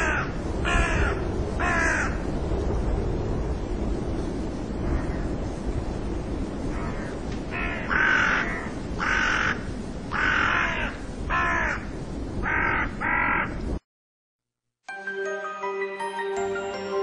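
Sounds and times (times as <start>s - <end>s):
crow cawing: 0.0s - 2.2s, 6.7s - 13.6s
steady rushing noise: 0.0s - 13.8s.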